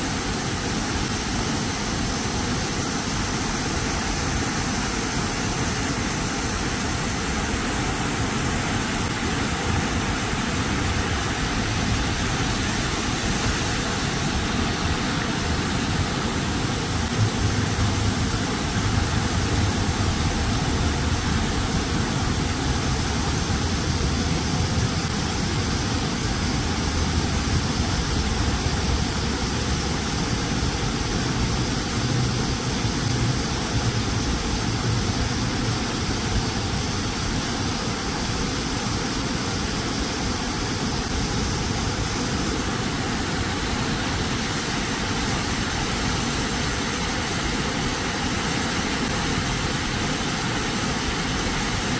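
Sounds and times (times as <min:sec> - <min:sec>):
fountain water splashing: 0:00.0 - 0:51.9
road traffic rumble: 0:16.7 - 0:36.8.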